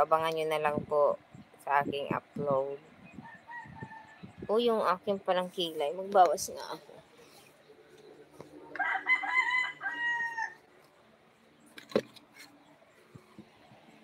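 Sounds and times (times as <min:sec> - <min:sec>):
rooster crowing: 0:03.2 - 0:04.4, 0:08.8 - 0:10.7.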